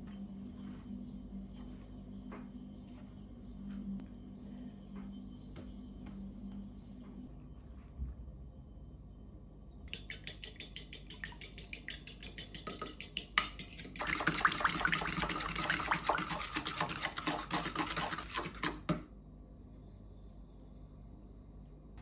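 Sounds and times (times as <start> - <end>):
fork beating eggs in bowl: 9.9 - 18.9.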